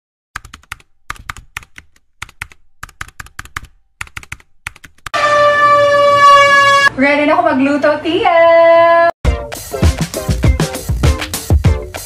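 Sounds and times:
keyboard key clicks: 0:00.4 - 0:05.1.

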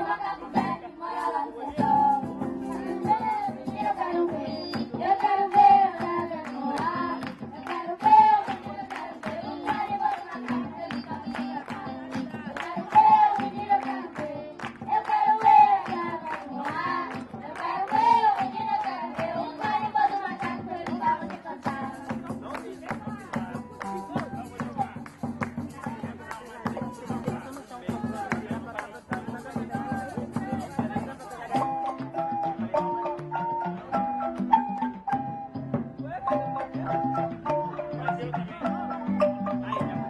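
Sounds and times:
guitar: 0:00.0 - 0:40.0
drums: 0:01.8 - 0:06.2, 0:20.6 - 0:31.7, 0:35.0 - 0:37.5
recorders playing melody: 0:31.2 - 0:40.0.

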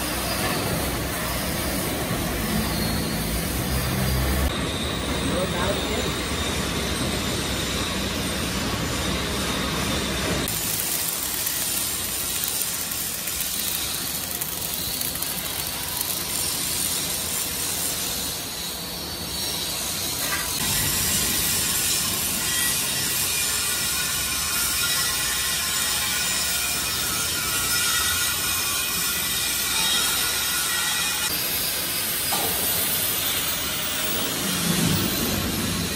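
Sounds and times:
low workshop noise: 0:00.0 - 0:35.9
arc welding crackling sizzle: 0:08.4 - 0:35.9.

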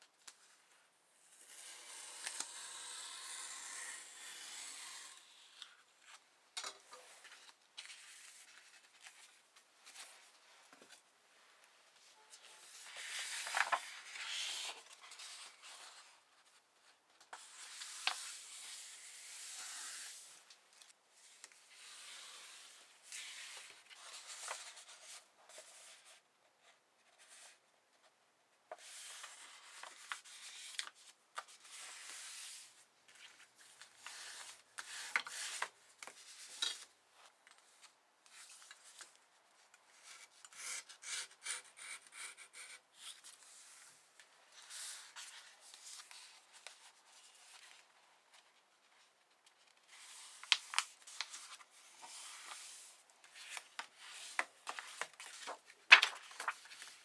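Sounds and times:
paper swishing and rustling: 0:50.0 - 0:57.0.

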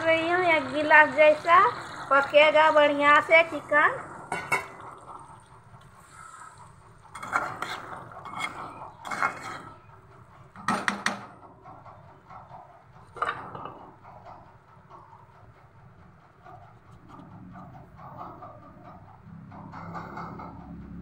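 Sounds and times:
metal ladle scraping a pan: 0:06.0 - 0:09.9.

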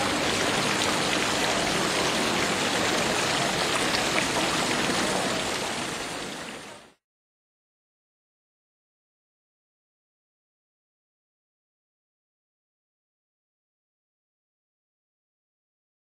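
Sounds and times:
rain splashing on stone: 0:00.0 - 0:07.0.

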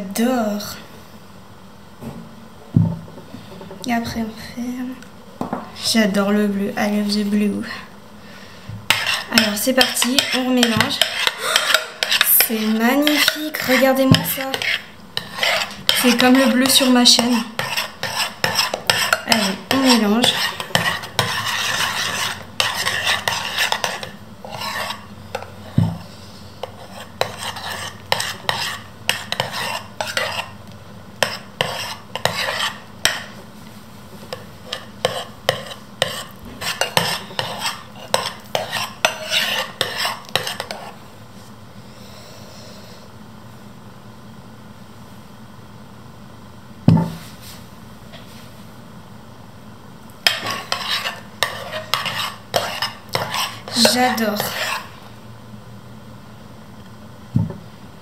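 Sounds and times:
spoon stirring thick slime: 0:08.8 - 0:41.0, 0:50.1 - 0:55.0.

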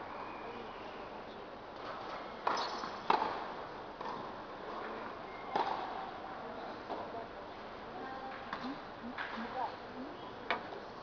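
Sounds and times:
tennis ball struck by racket: 0:02.4 - 0:04.3, 0:05.5 - 0:05.9
tennis ball bouncing: 0:02.4 - 0:04.4, 0:05.5 - 0:05.9.

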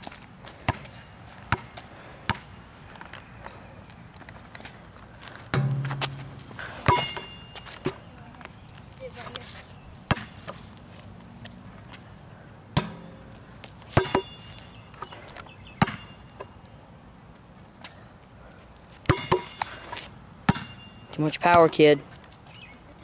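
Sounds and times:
basketball clanging off rim: 0:05.5 - 0:07.5, 0:14.0 - 0:14.5, 0:19.1 - 0:19.7, 0:20.5 - 0:21.0
basketball bouncing on concrete: 0:05.5 - 0:08.0, 0:10.1 - 0:10.4, 0:12.8 - 0:15.1, 0:15.8 - 0:16.2, 0:19.0 - 0:19.7, 0:20.5 - 0:21.8.

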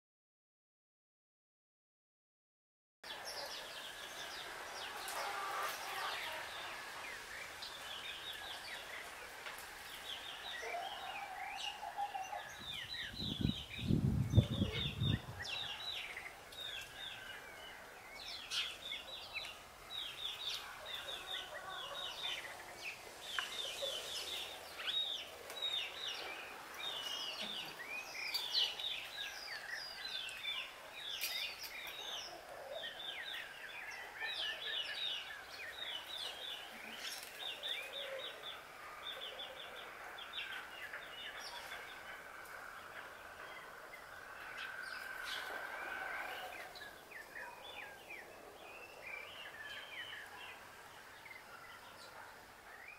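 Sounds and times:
small birds chirping: 0:03.0 - 0:52.9
low rumble on microphone: 0:12.6 - 0:15.7.

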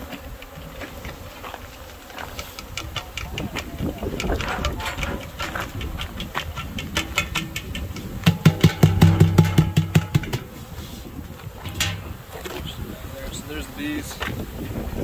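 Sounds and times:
metal cans and boxes clicking: 0:02.7 - 0:10.6, 0:11.6 - 0:12.2.

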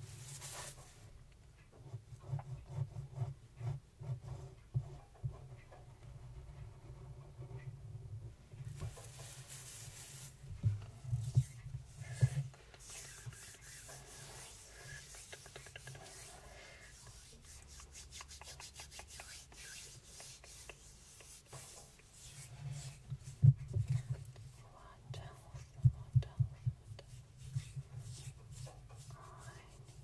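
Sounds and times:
scratchy rubbing with fine ticks: 0:00.0 - 0:01.1, 0:01.7 - 0:07.7, 0:08.7 - 0:30.0
paper being handled: 0:08.8 - 0:10.4.

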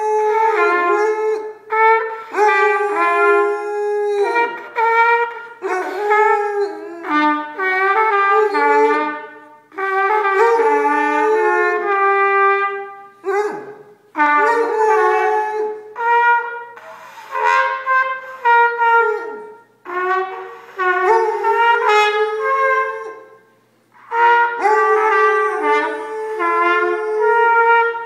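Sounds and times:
dog howling: 0:00.0 - 0:01.5, 0:02.3 - 0:07.7, 0:08.3 - 0:09.3, 0:10.2 - 0:11.9, 0:13.2 - 0:13.8, 0:14.4 - 0:15.9, 0:20.8 - 0:23.3, 0:24.6 - 0:28.0
trumpet playing slow tune: 0:00.0 - 0:28.0.

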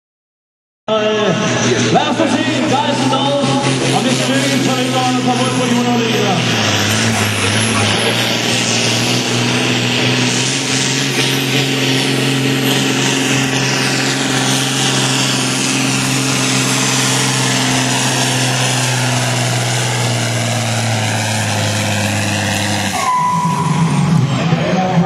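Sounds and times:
high whine: 0:00.9 - 0:25.0
tractor diesel engine running hard: 0:00.9 - 0:25.0.

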